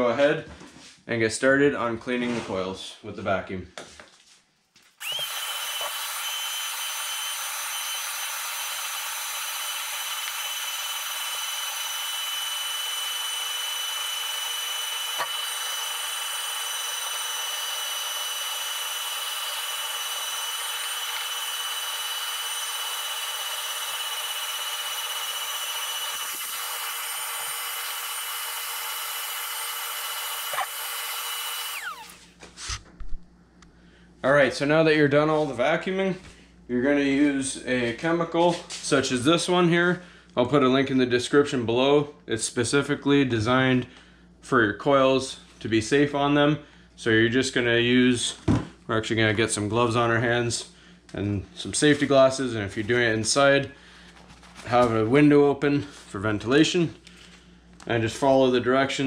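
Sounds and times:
vacuum cleaner whining: 5.0 - 32.8.

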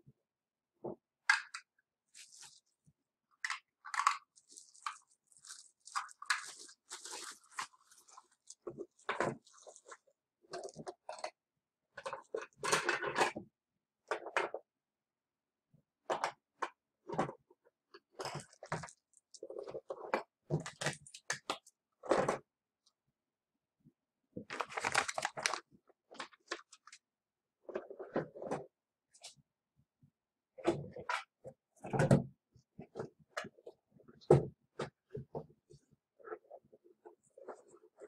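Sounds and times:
plastic bags crinkling: 3.9 - 10.0, 24.5 - 25.6.

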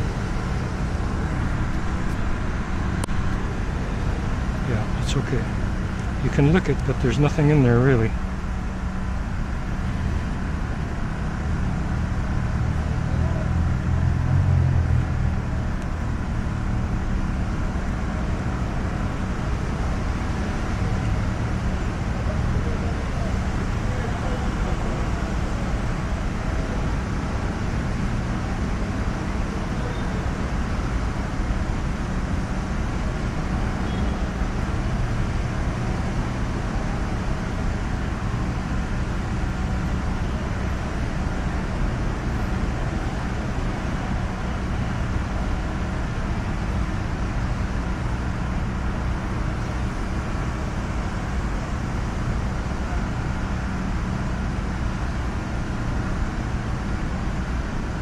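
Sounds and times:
road traffic rumble: 0.0 - 58.0.

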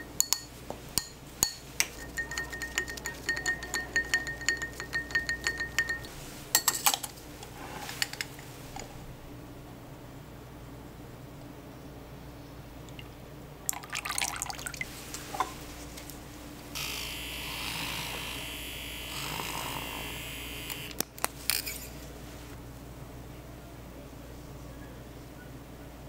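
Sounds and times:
liquid pouring: 12.8 - 14.9.

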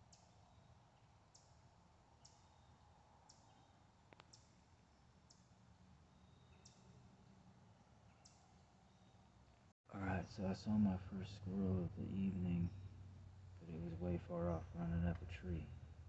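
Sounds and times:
faint high-pitched clicks: 3.2 - 4.6.

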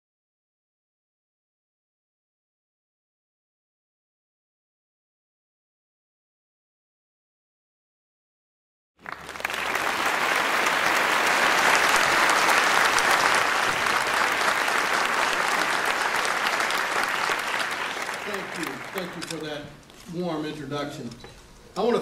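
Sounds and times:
audience applause: 9.0 - 19.6.

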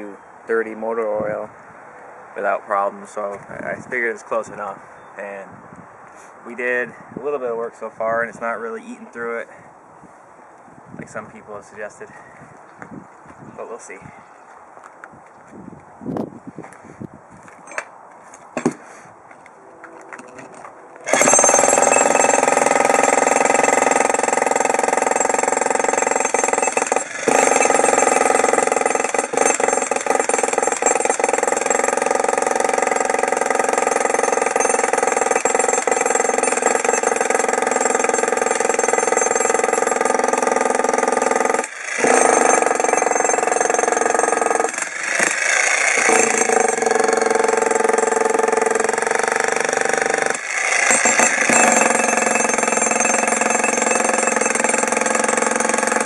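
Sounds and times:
demolition hammer breaking concrete: 21.1 - 56.0.

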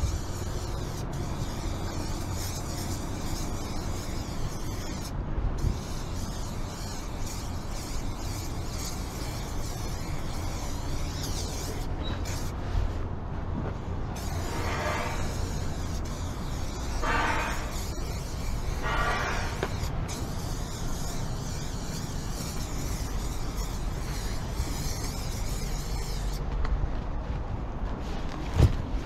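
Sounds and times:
spray-paint can hissing: 0.0 - 12.6, 14.2 - 26.4
wind rumble on microphone: 2.5 - 10.9.

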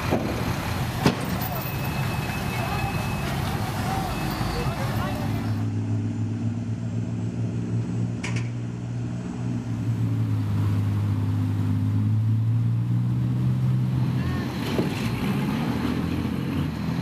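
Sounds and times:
boat engine low drone: 1.6 - 14.9.

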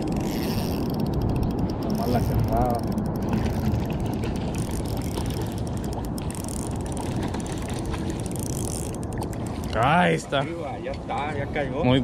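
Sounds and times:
fishing reel ratcheting clicks: 0.1 - 9.4.

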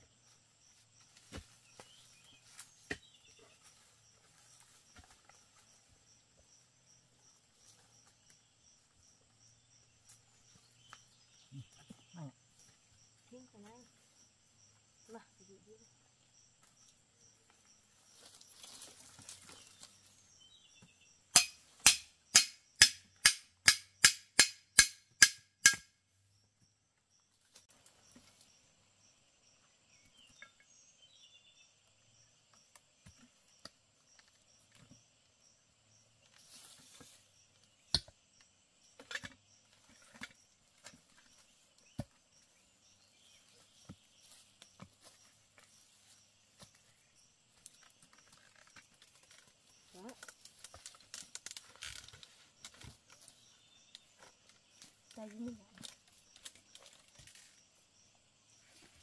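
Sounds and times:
insects chirring: 0.0 - 59.0
sharp evenly spaced knocks: 21.3 - 25.9.

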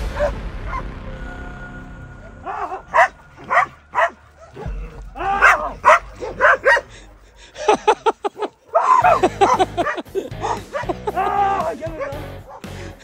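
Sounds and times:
dogs barking: 2.4 - 7.1, 8.3 - 13.0.

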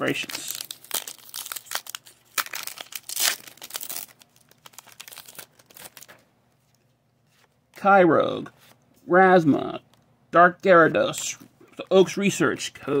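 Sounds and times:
plastic wrapper tearing and crinkling: 0.0 - 6.2.

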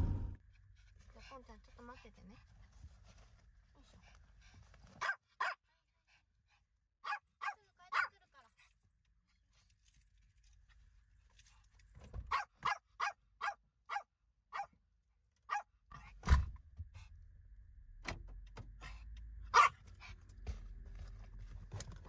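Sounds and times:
loud thump: 0.0 - 0.4
low rumble: 0.0 - 0.4
small dog barking: 5.0 - 5.6, 7.0 - 8.2, 12.3 - 14.7, 15.5 - 15.7, 19.5 - 19.8.

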